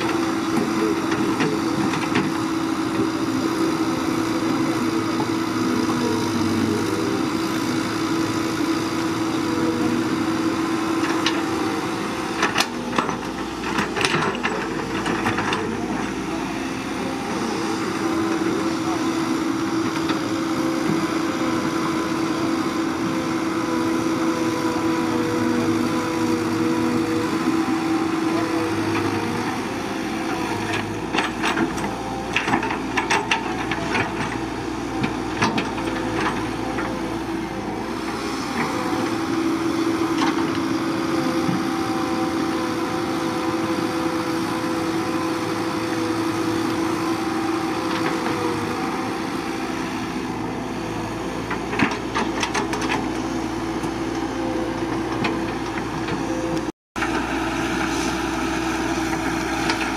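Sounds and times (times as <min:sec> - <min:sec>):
excavator diesel engine running: 0:00.0 - 0:59.9.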